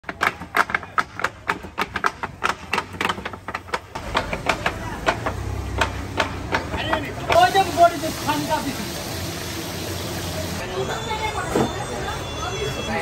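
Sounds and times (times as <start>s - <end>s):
knives chopping on wooden board: 0.0s - 7.5s.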